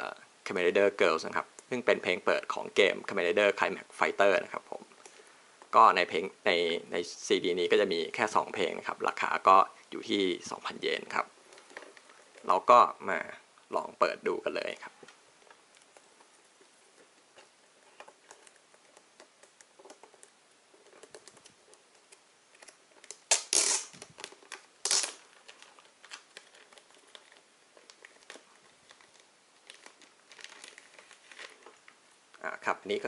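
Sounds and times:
plastic wrap crinkling: 14.6 - 32.4
plastic wrap ripping: 22.6 - 32.0.

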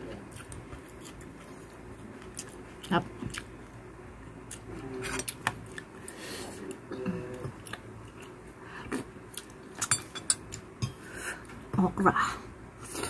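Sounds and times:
chewing and mouth noises: 0.2 - 3.6.

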